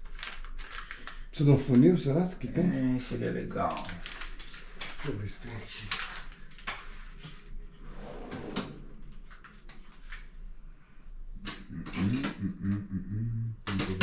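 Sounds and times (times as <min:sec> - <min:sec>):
drawer pulled open: 0:07.7 - 0:09.4
low voice: 0:11.7 - 0:14.0.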